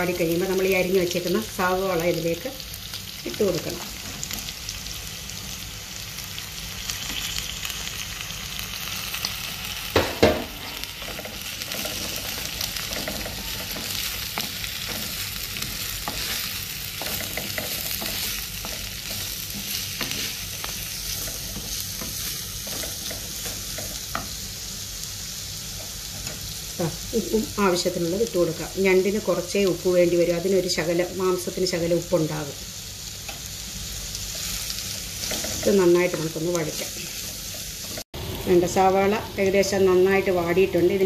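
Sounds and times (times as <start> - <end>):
onions sizzling in hot oil: 0.0 - 41.0
wooden spatula scraping pot: 10.6 - 24.4.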